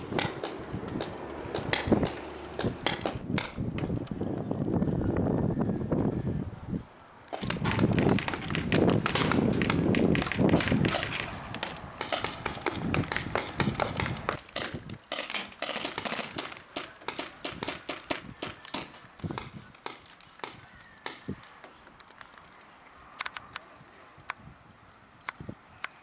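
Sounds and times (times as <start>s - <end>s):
paintball markers firing pops: 0.0s - 4.2s, 7.3s - 23.6s.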